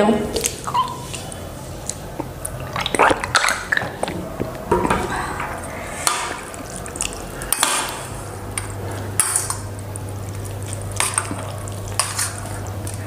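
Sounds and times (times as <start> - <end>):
steady low hum: 0.0 - 13.0
fork clinking and scraping bowl: 11.0 - 12.6.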